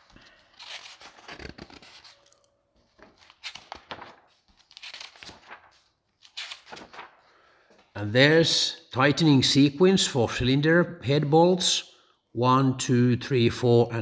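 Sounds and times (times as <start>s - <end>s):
paper pages rustling: 0.0s - 7.8s.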